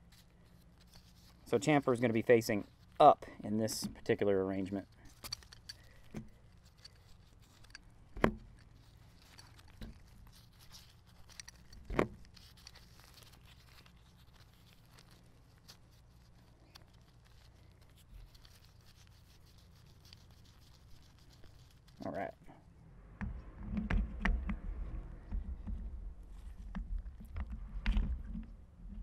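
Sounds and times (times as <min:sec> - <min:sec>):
gloved hands rustling: 0:00.0 - 0:29.0
metal parts clinking: 0:04.8 - 0:15.2.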